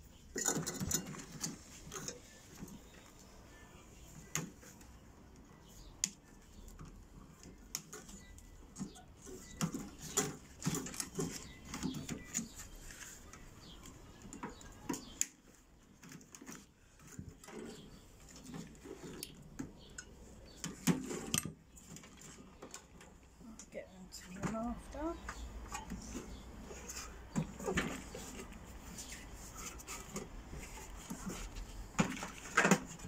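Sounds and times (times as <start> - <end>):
clicks and rattles inside metal casing: 0.2 - 2.8.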